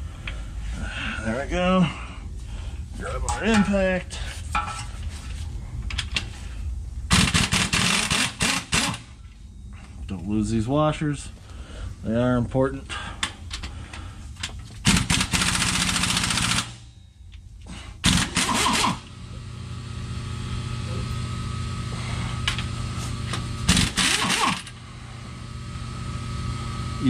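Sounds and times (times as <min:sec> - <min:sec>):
impact wrench hammering: 0:14.9 - 0:16.7, 0:18.0 - 0:19.1, 0:23.7 - 0:24.8.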